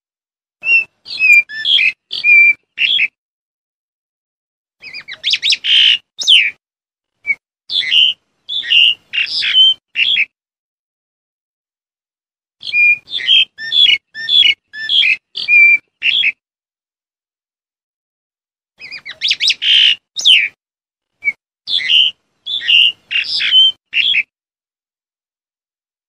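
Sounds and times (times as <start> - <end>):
starling whistling and chattering: 0.6 - 3.2, 4.8 - 6.6, 7.2 - 10.3, 12.6 - 16.4, 18.8 - 20.6, 21.2 - 24.3.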